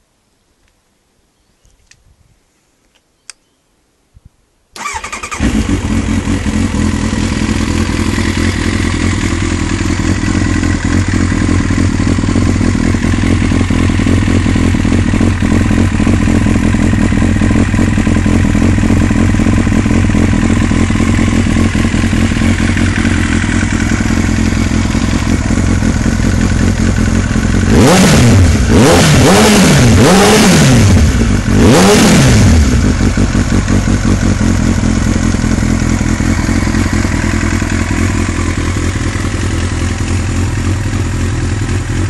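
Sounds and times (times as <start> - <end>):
click: 0.6 - 0.8, 1.6 - 2.0, 2.8 - 3.5
motorcycle engine starting and idling: 4.8 - 42.0.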